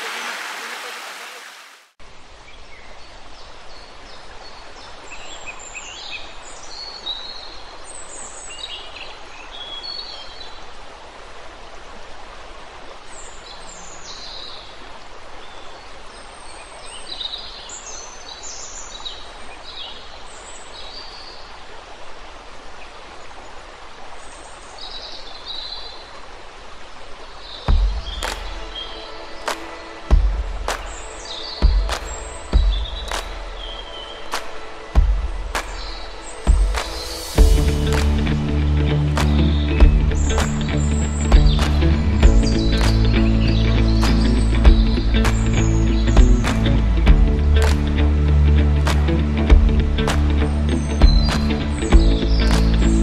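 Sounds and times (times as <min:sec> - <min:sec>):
stream running over rocks: 0:00.0 - 0:53.0
small birds chirping: 0:39.2 - 0:47.9, 0:50.1 - 0:53.0.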